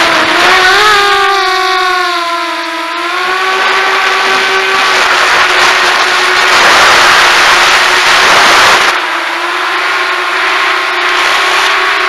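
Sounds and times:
drone motors whining: 0.0 - 12.0
rush of air: 3.6 - 12.0.

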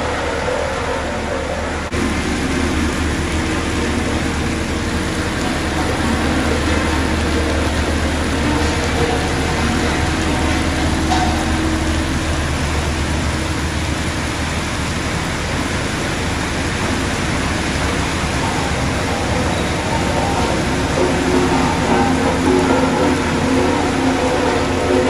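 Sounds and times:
heavy rain hissing: 0.0 - 25.0
road roller diesel engine: 0.0 - 25.0.

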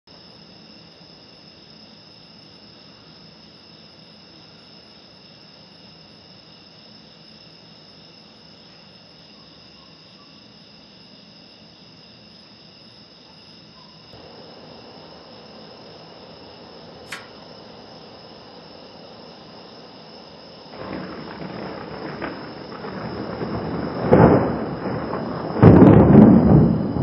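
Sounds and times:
crickets trilling: 0.1 - 27.0
low even hiss: 14.1 - 25.0.

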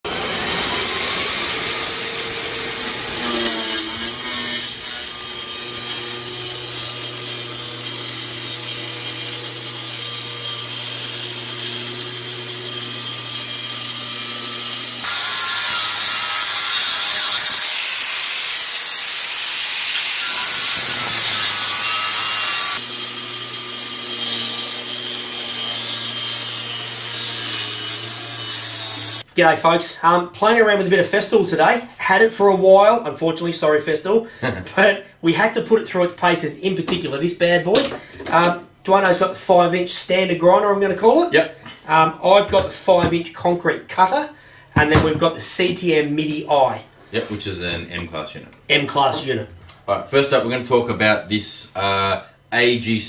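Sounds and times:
cutter and dust extractor humming: 0.0 - 29.3
short rising tone: 0.1 - 3.2
blade grinding into sheet: 0.1 - 29.3.

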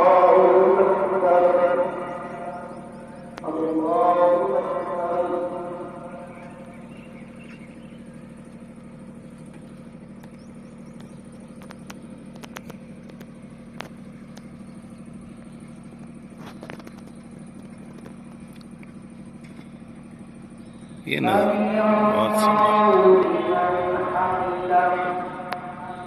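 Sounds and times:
generator humming: 0.0 - 26.0
faint clicks and knocks: 11.0 - 14.5.

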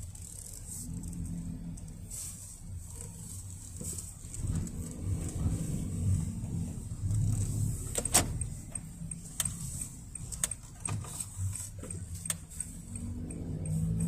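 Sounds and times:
car engine: 0.0 - 14.0
road noise: 0.0 - 14.0
turn signal ticking: 3.7 - 14.0.

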